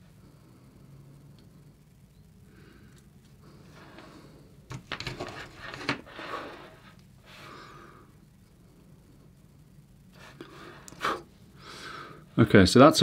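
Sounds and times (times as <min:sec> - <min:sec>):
faint steady hum: 0:00.0 - 0:13.0
small clicks and scrapes: 0:04.7 - 0:06.2
soft breath: 0:06.0 - 0:12.3.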